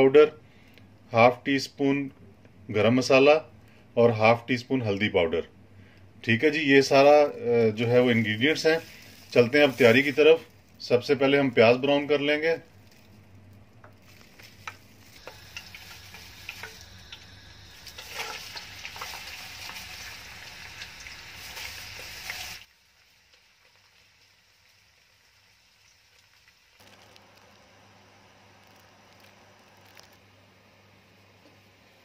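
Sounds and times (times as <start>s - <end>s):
onions sizzling in oil: 7.8s - 10.8s, 14.0s - 30.1s
stirring clicks: 12.8s - 19.8s.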